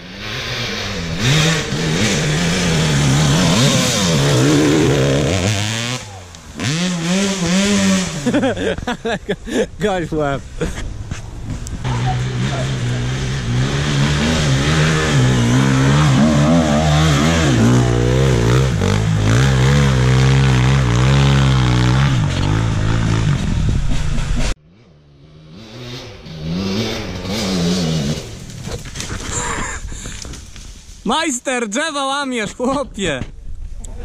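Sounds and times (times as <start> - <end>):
dirt bike engine revving: 0.0 - 9.0, 11.4 - 28.7
distant dirt bike revving: 0.0 - 9.2, 10.6 - 29.0.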